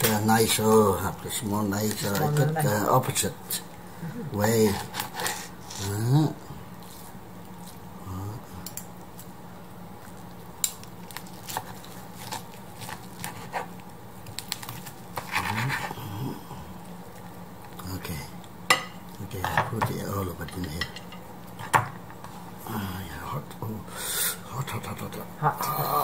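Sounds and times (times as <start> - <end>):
knife scraping cutting board: 4.6 - 5.8, 15.2 - 16.0.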